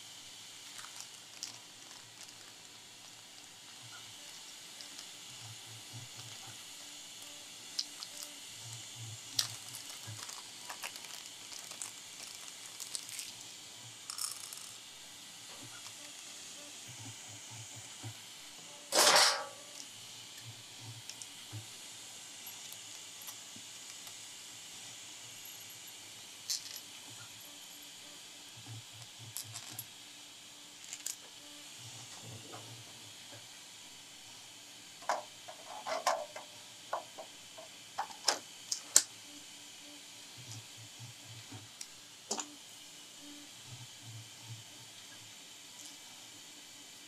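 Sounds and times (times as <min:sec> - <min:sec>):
steady hiss: 0:00.0 - 0:47.0
small parts clicking and tapping: 0:00.6 - 0:14.9, 0:15.5 - 0:21.8, 0:22.4 - 0:24.3, 0:25.2 - 0:30.0, 0:30.7 - 0:31.5, 0:35.0 - 0:39.2, 0:40.4 - 0:42.6.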